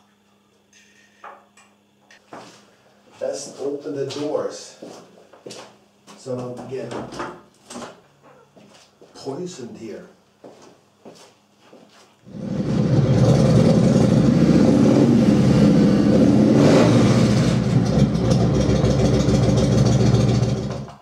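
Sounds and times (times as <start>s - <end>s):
motorcycle engine running: 12.3s - 21.0s.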